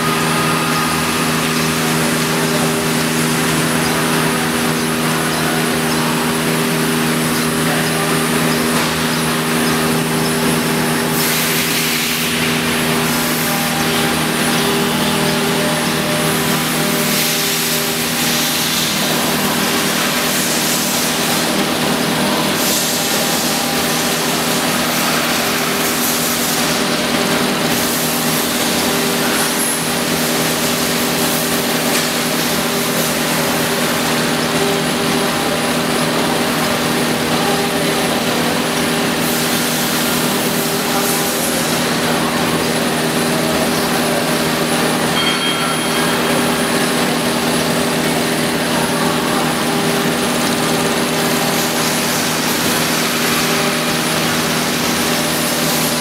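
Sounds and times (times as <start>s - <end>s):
router spindle humming: 0.0s - 56.0s.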